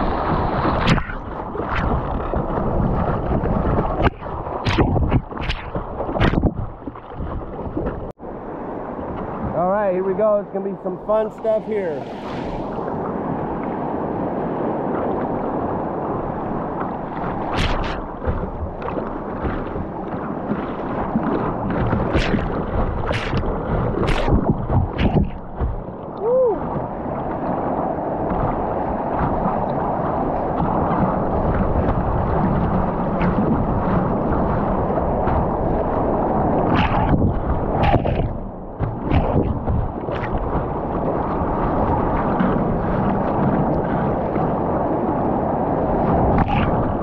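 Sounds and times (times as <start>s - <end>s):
waves splashing: 0.0s - 47.0s
whitewater rushing: 9.4s - 14.5s.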